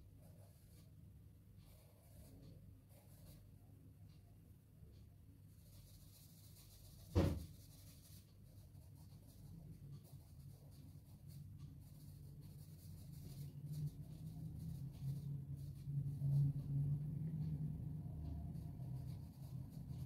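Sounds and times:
faint low hum: 0.0 - 20.0
sharp knock: 7.1 - 7.6.

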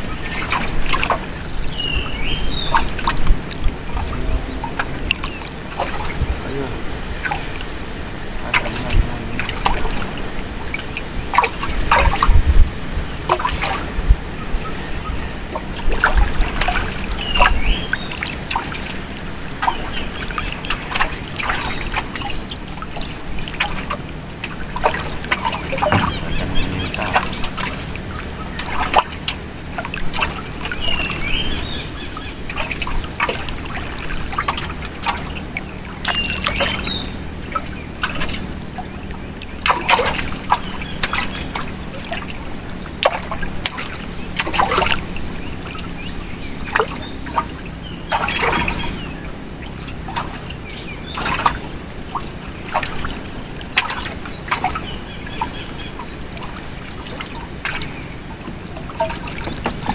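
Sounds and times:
water splashing and trickling: 0.0 - 59.9.

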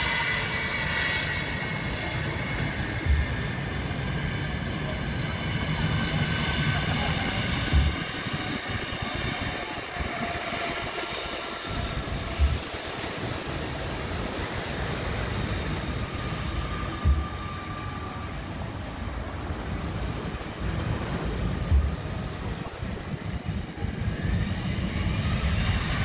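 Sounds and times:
jet engines whining: 0.0 - 26.0
low thumps: 3.0 - 3.6, 7.6 - 8.4, 11.7 - 13.5, 16.1 - 18.5, 21.0 - 23.5.

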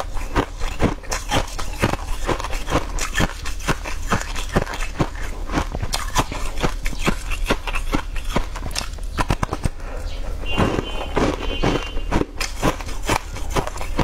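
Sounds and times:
chewing crunchy food: 0.0 - 14.0.

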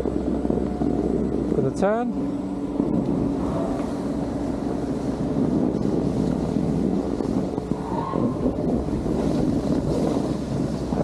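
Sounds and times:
wind noise on microphone: 0.0 - 11.0.

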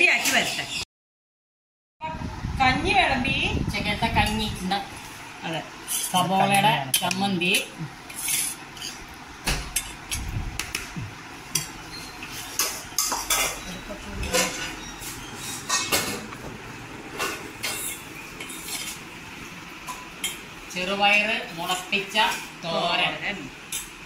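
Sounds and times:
metal spoons clinking on bowls: 11.6 - 16.2.

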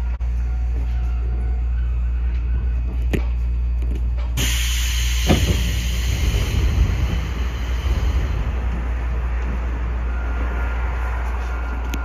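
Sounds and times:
electric train humming: 0.0 - 12.0.

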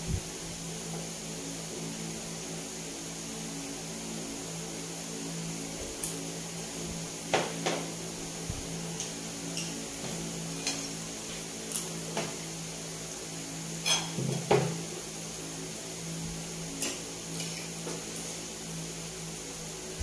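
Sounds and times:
steady low hum: 0.0 - 20.0
cutlery clinking on plate: 13.8 - 14.6.

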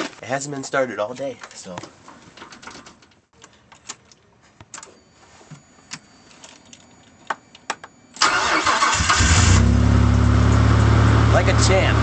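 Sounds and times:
faint high steady tone: 4.8 - 8.2
engine starter cranking: 8.2 - 9.7.

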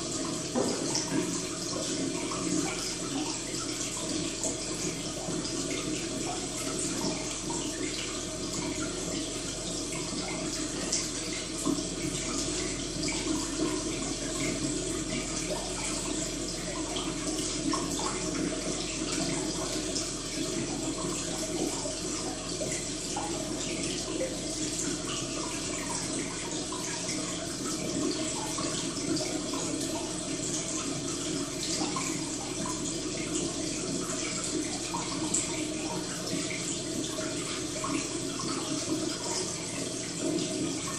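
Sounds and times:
trickling water: 0.0 - 40.9.

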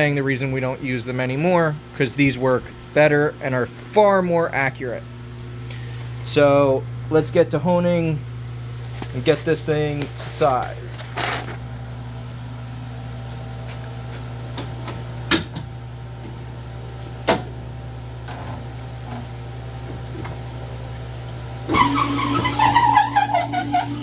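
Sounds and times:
hone grinding with whine: 0.7 - 15.2, 17.8 - 24.0.

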